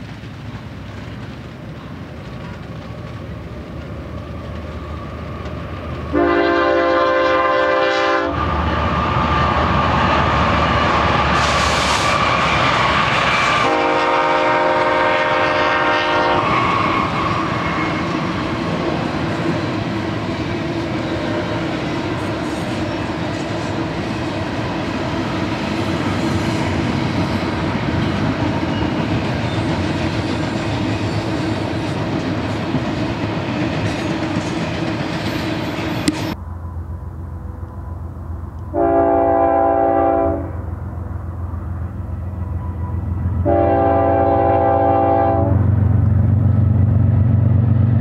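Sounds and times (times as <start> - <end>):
train wheels on rails: 0.0 - 48.0
locomotive horn: 6.1 - 8.5, 13.4 - 18.2, 38.7 - 40.7, 42.6 - 45.7.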